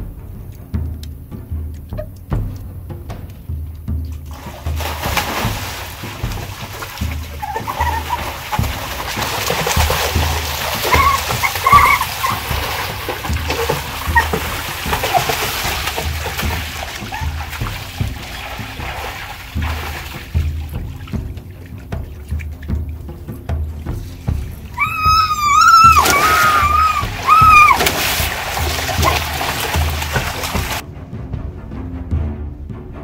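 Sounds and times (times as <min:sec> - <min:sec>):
music with low beat: 0:00.0 - 0:24.8
water splashing into pool: 0:00.6 - 0:30.8.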